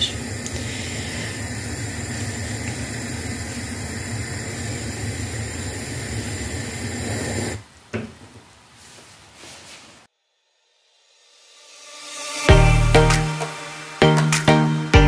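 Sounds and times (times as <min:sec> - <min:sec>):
gas burner hissing: 0:00.0 - 0:07.7.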